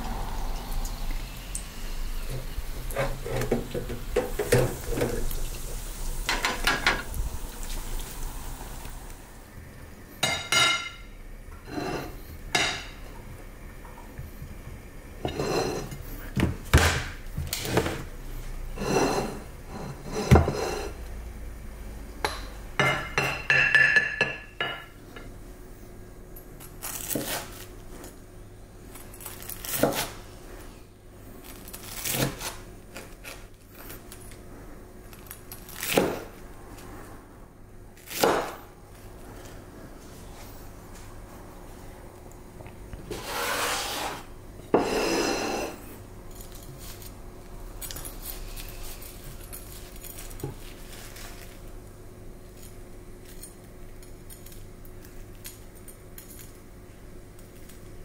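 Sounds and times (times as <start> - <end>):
rice paddle scraping ceramic plate: 11.6 - 12.2, 15.2 - 16.0, 18.8 - 21.0, 43.1 - 45.8.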